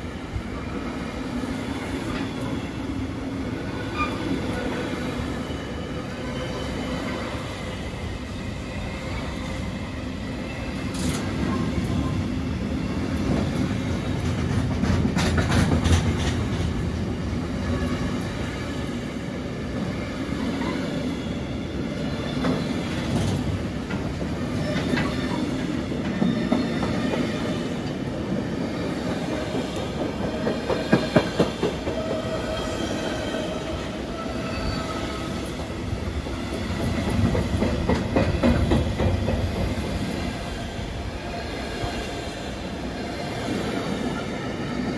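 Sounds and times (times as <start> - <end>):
train wheels rumbling on rails: 0.0 - 44.9
wheels clicking over rail joints: 13.2 - 17.0.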